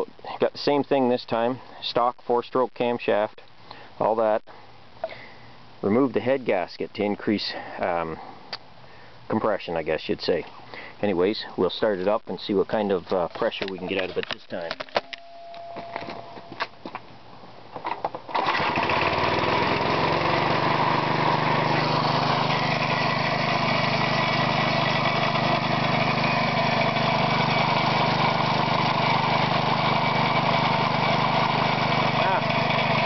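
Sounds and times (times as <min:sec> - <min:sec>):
air compressor engine running: 0:18.3 - 0:33.0.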